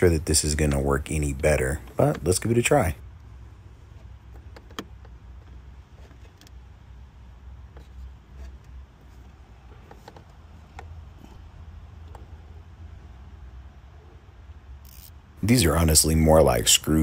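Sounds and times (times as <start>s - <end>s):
ratchet wrench clicks and scrapes: 14.8s - 15.2s.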